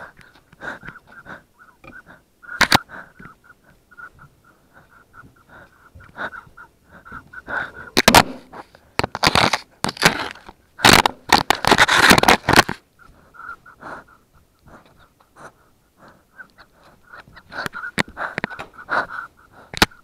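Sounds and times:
puppy panting: 0:00.0 - 0:07.9, 0:13.0 - 0:19.7.

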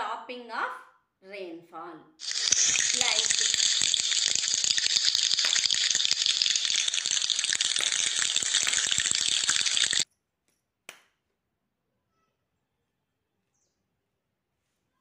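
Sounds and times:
dense rain-like patter: 0:02.2 - 0:10.0.

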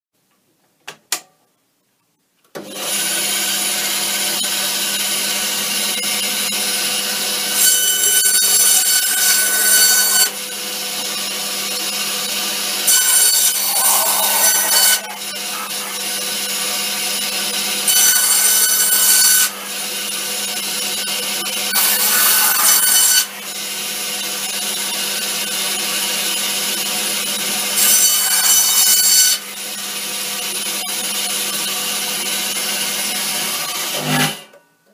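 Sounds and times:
bandsaw blade cutting: 0:02.6 - 0:34.6
bandsaw humming: 0:02.6 - 0:34.6.

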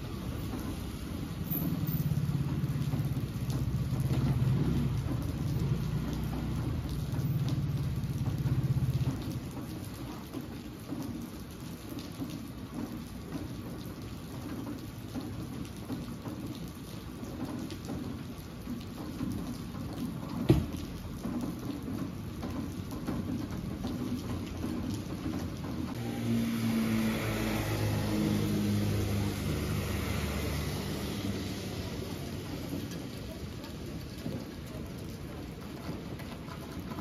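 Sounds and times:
rain falling on wet street: 0:00.0 - 0:37.0
water drips: 0:00.0 - 0:37.0
motor scooter engine hum: 0:26.0 - 0:32.6.

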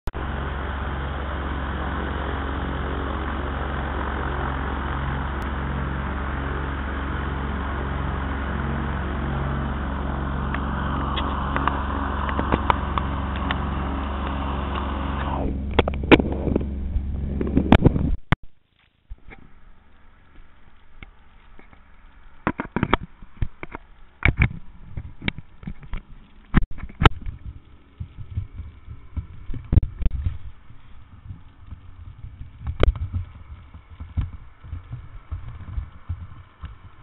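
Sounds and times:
aircraft engine humming: 0:00.0 - 0:18.4, 0:19.1 - 0:37.0
sharp clicks and knocks: 0:20.3 - 0:30.6.

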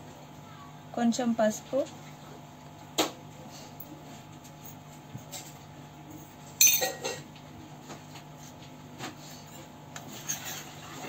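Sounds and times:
spoon clinking against metal bowl: 0:06.6 - 0:07.2.

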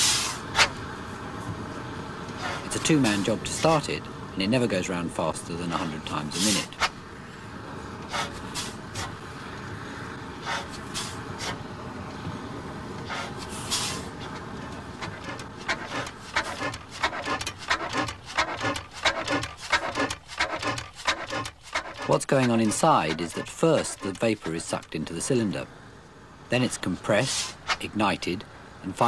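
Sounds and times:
engine hissing puffs: 0:00.0 - 0:04.8, 0:05.5 - 0:26.5, 0:27.1 - 0:27.9
engine clattering knocks: 0:14.2 - 0:24.6.

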